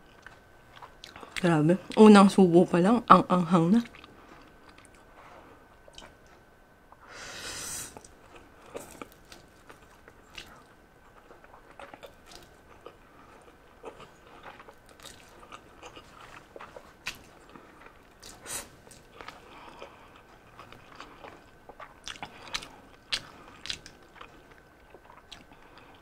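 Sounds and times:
soft chewing: 0.0s - 2.1s, 3.8s - 7.1s, 7.9s - 26.0s.

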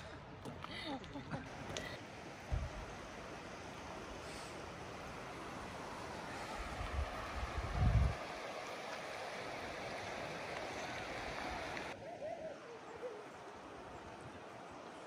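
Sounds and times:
stream water rushing: 1.5s - 15.0s
wind buffeting microphone: 6.6s - 8.3s.

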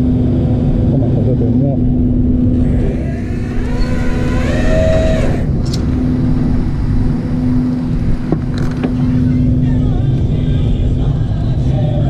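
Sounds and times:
truck engine rumbling: 0.0s - 12.0s
brief rising and falling tone: 2.6s - 5.7s.

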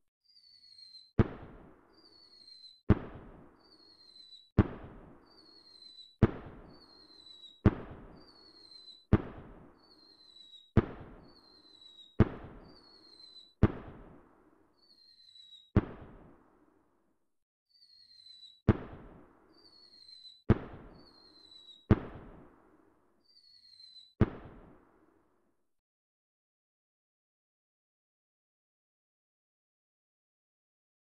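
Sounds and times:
firework bang and crackle: 1.2s - 14.4s, 15.8s - 16.5s, 18.7s - 22.6s, 24.2s - 24.9s
firework falling whistle: 5.3s - 13.6s, 14.8s - 15.7s.

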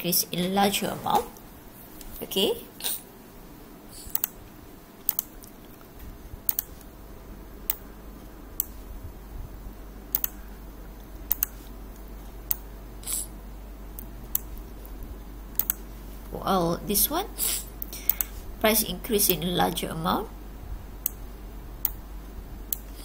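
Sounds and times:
faint low hum: 0.0s - 23.0s
computer mouse clicks: 4.0s - 4.4s, 5.0s - 6.9s, 8.6s - 8.8s, 10.1s - 10.4s, 11.1s - 11.8s, 15.6s - 15.8s, 17.8s - 18.3s.

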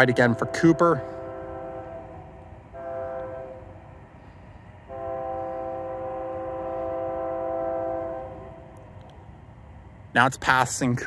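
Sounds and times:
distant locomotive air horn: 0.0s - 8.8s.

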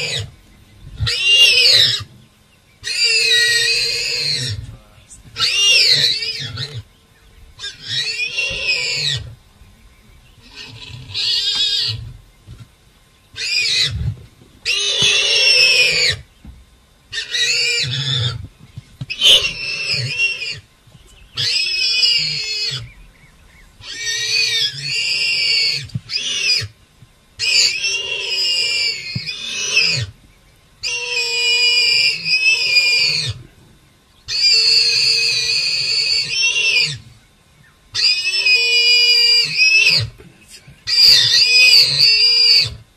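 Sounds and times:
warthog squealing: 0.0s - 0.3s, 1.0s - 2.1s, 2.8s - 4.7s, 5.4s - 6.9s, 7.6s - 9.3s, 10.4s - 12.1s, 13.4s - 14.0s, 14.6s - 16.2s, 17.1s - 18.4s, 19.1s - 20.6s, 21.4s - 22.9s, 23.8s - 26.8s, 27.4s - 30.2s, 30.8s - 33.4s, 34.3s - 37.1s, 38.0s - 40.2s, 40.9s - 42.8s.

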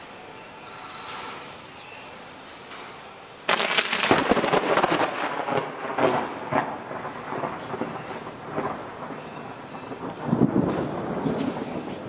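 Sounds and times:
thunderclap crackling: 3.4s - 12.0s.

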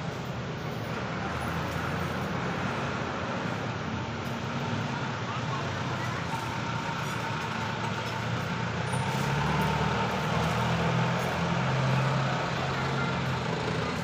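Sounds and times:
vehicle engines humming past: 0.0s - 14.0s.

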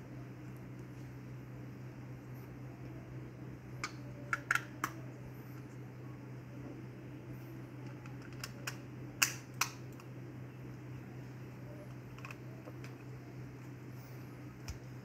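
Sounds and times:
plastic cover snapping clicks: 8.2s - 10.1s.

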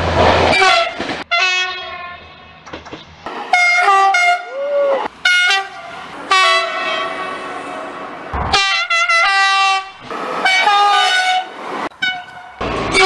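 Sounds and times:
train horn blasts: 0.5s - 2.3s, 3.5s - 4.6s, 5.2s - 13.0s
sharp thump: 8.3s - 8.9s.

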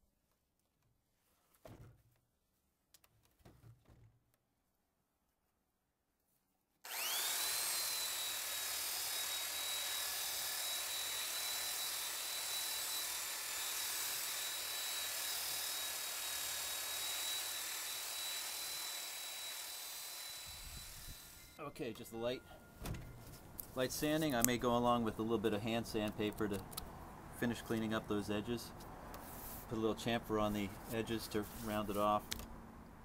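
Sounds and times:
belt sander whining: 6.9s - 21.6s.

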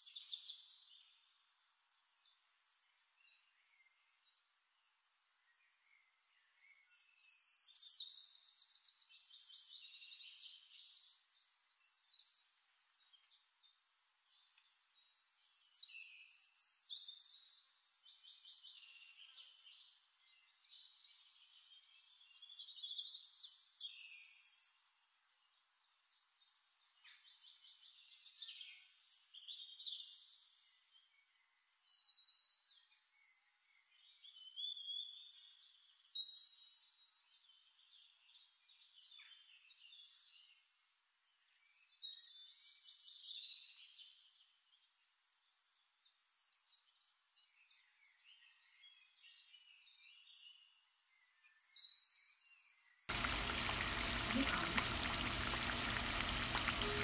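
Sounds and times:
birds chirping and trilling: 53.1s - 57.0s.

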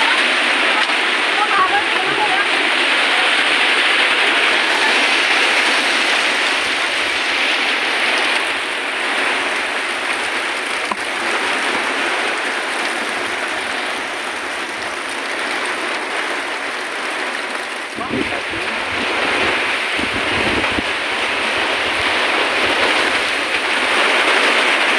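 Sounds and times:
heavy rain pouring: 0.0s - 24.9s.

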